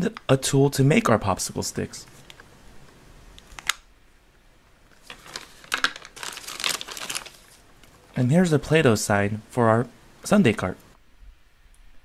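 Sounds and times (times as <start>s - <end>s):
plastic wrapping crinkling: 4.8s - 8.2s.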